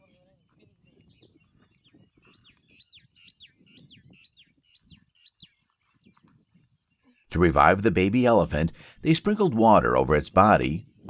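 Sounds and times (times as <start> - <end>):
bird chirping: 0.0 - 7.2.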